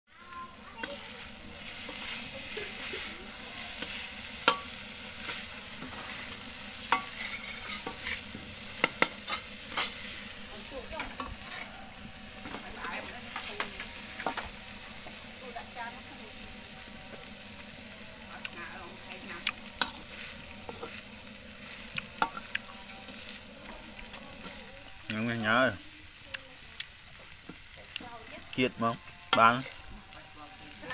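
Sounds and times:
food sizzling in wok: 0.1 - 30.9
metal spatula scraping: 0.7 - 14.5, 19.0 - 24.8, 28.9 - 30.9.

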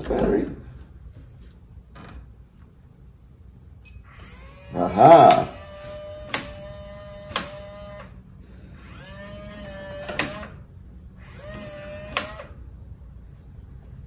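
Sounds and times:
motorized lock bolt whirring: 3.9 - 8.2, 8.8 - 10.6, 11.2 - 12.6.

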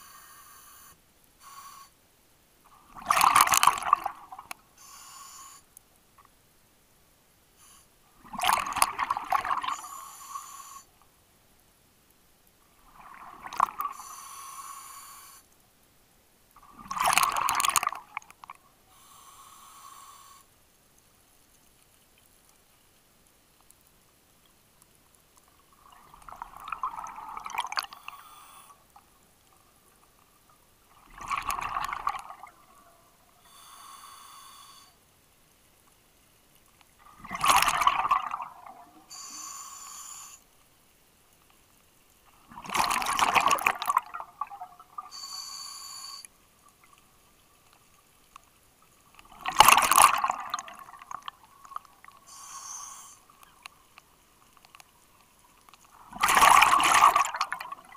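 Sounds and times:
regulator inhalation hiss: 0.0 - 2.0, 4.8 - 5.7, 9.7 - 10.9, 14.0 - 15.4, 18.9 - 20.5, 28.0 - 28.8, 33.4 - 35.0, 39.1 - 40.4, 45.1 - 46.3, 52.2 - 53.3
bubbling exhalations underwater: 37.2 - 38.8, 42.5 - 44.8, 49.3 - 51.3, 56.1 - 57.9.

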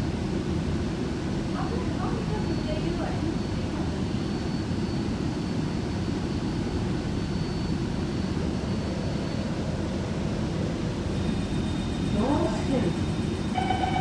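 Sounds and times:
train rumble in tunnel: 0.0 - 4.6, 9.4 - 14.0
faint high whine: 0.0 - 14.0.

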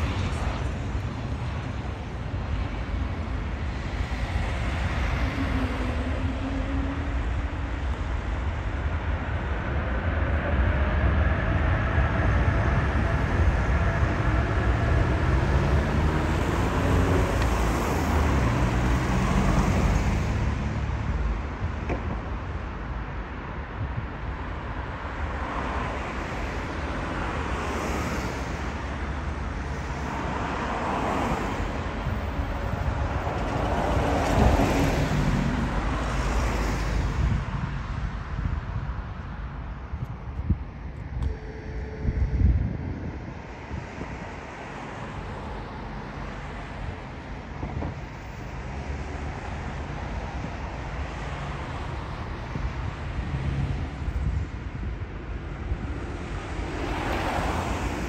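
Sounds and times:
jet engine rumble: 0.0 - 20.1
jet engine whine: 0.0 - 20.2, 39.0 - 48.6
wind buffeting microphone: 0.0 - 20.4, 28.5 - 58.0.

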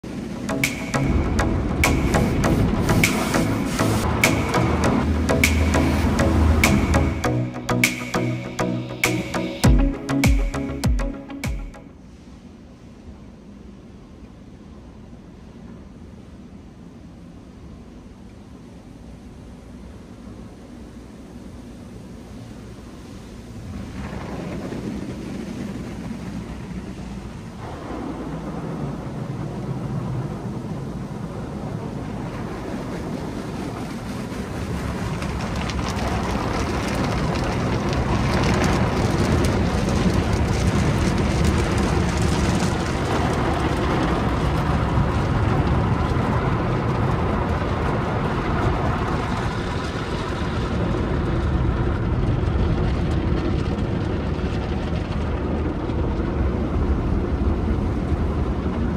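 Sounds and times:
water jets spraying car: 29.6 - 51.4.

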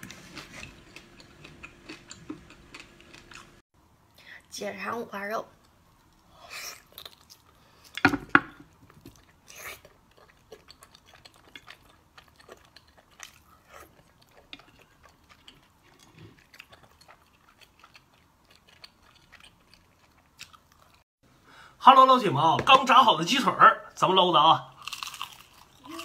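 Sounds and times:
wet chewing and lip-smacking: 0.0 - 3.6, 5.6 - 8.0, 8.8 - 21.0.

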